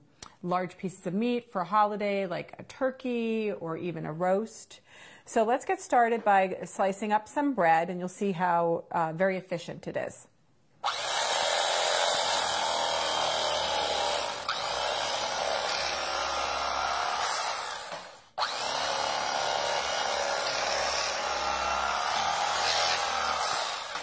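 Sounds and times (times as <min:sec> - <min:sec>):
electric knife sawing bread: 0:10.8 - 0:24.0.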